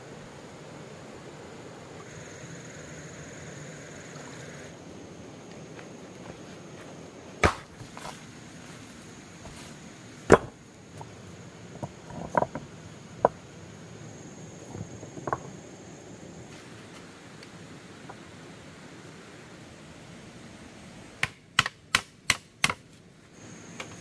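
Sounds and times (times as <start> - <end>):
sharp knocks: 10.3 - 10.6.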